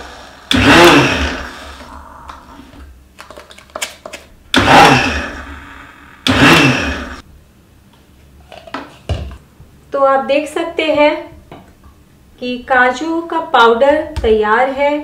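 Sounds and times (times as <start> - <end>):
mixer grinder bursts: 0.0 - 2.2, 4.5 - 7.2.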